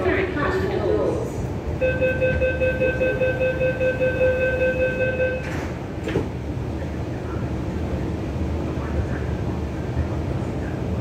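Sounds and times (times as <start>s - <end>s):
low train hum: 0.0s - 11.0s
high warning tone: 1.8s - 5.7s
sliding doors closing with thump: 5.4s - 6.4s.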